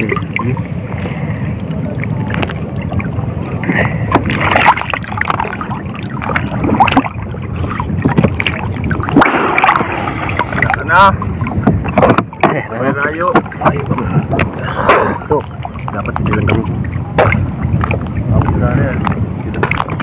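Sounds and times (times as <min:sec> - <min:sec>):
wind rumble on microphone: 0:00.0 - 0:20.0
water splashing off a net: 0:03.8 - 0:07.2, 0:08.0 - 0:10.8.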